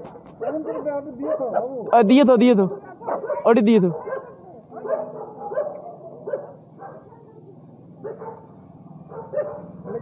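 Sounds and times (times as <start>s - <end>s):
dog barking: 0.1s - 1.6s, 2.7s - 7.2s, 8.0s - 10.0s.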